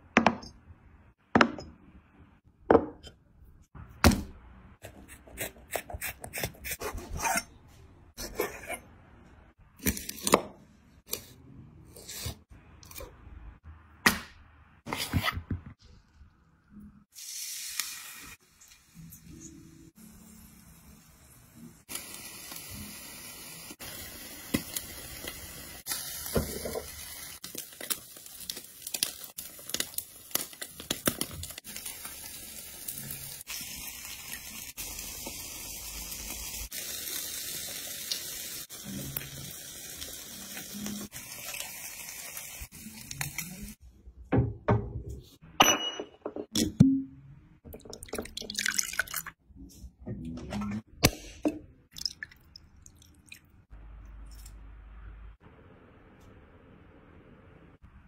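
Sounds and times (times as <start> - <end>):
fish sizzling on a grill: 21.9 - 43.8.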